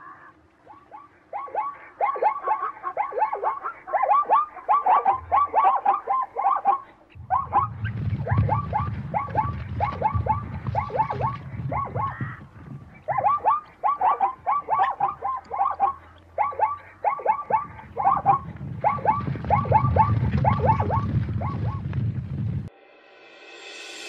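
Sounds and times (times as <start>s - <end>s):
rapid chattering animal calls: 0.0s - 21.9s
low rumble: 7.1s - 13.1s, 17.6s - 24.0s.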